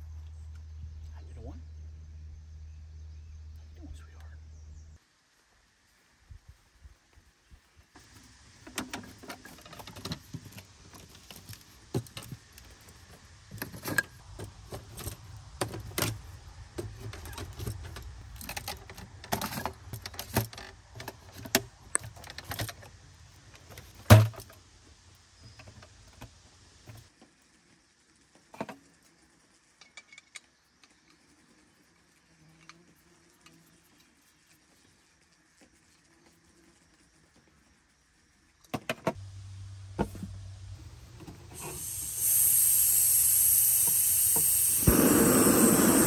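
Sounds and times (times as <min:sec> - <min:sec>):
metal camp table clanks and rattles: 0:08.7 - 0:10.6, 0:13.5 - 0:16.2, 0:16.8 - 0:22.9, 0:29.8 - 0:30.5.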